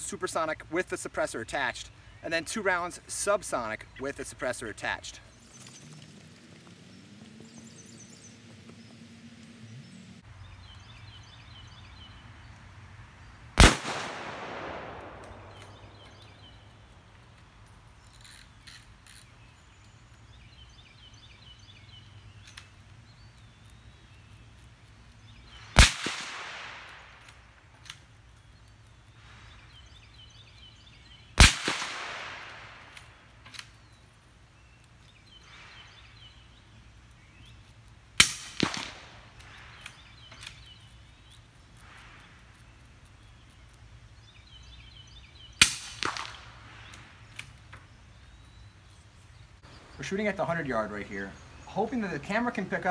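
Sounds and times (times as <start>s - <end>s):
suppressed rifle shots: 13.6s - 16.0s, 25.8s - 27.0s, 31.4s - 32.9s, 38.2s - 39.2s, 45.6s - 46.6s
rifle shots with echo: 13.6s - 16.1s, 25.8s - 27.2s, 31.4s - 32.9s, 38.2s - 39.3s, 45.6s - 46.7s.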